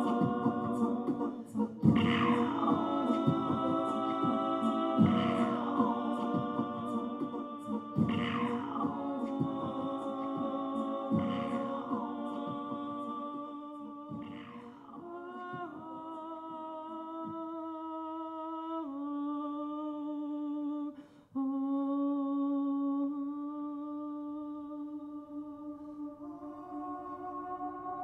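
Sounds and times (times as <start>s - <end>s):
man humming into a microphone: 0.0s - 13.0s.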